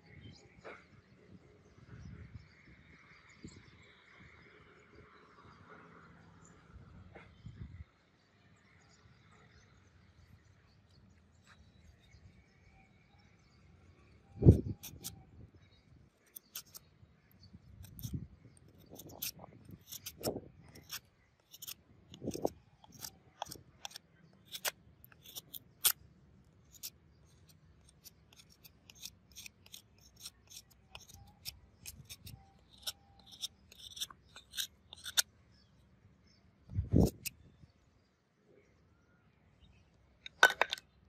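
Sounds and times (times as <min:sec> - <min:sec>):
knife cutting wood clicks: 0:14.5 - 0:15.2, 0:16.3 - 0:16.8, 0:17.8 - 0:26.0, 0:26.7 - 0:35.3.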